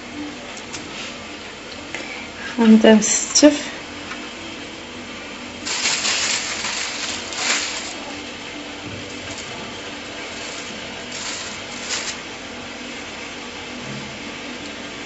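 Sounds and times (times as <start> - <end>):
hands rustling and scraping dough: 5.6 - 8.4, 9.1 - 12.3.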